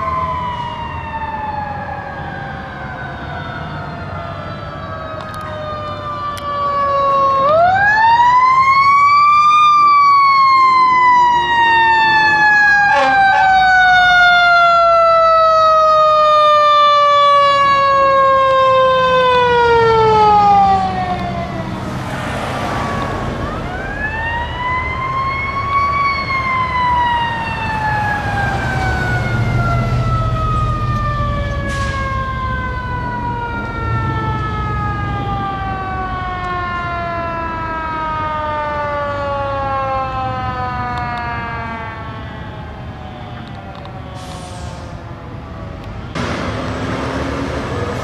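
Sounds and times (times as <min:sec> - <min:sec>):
heavy engine rumble: 0:43.4 - 0:48.0.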